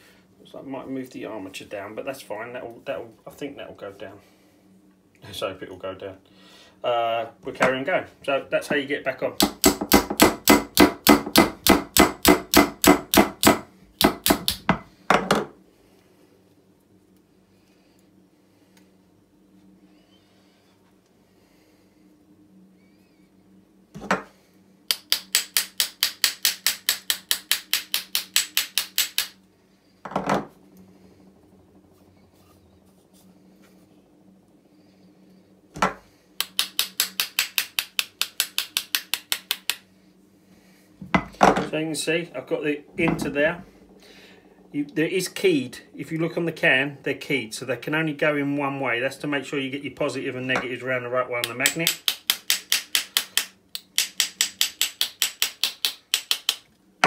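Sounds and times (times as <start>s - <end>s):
small hammer tapping metal: 24.9s - 29.3s, 35.8s - 39.8s, 51.4s - 56.7s.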